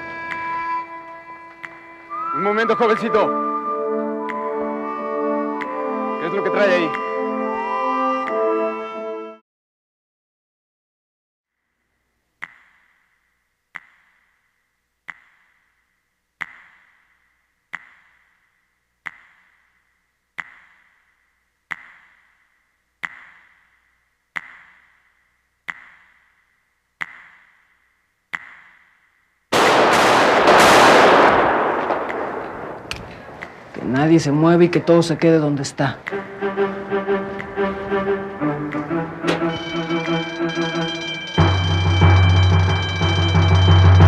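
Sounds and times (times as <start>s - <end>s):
loud gunshot: 29.6s - 33.0s
ringing ping: 39.3s - 44.0s.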